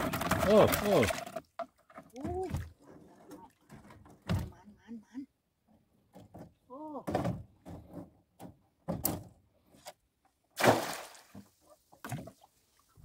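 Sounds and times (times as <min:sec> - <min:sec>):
loud splash in water: 0:10.6 - 0:11.3.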